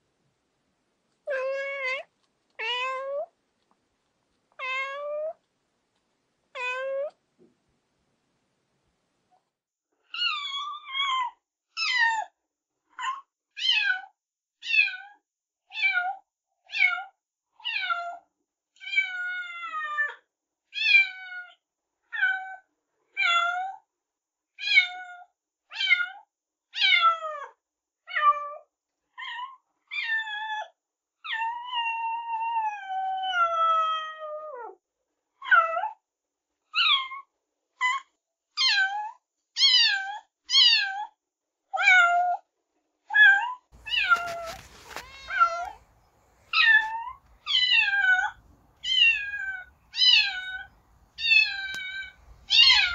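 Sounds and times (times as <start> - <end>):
cats meowing: 1.3 - 3.3, 4.6 - 5.4, 6.6 - 7.2, 43.8 - 52.9.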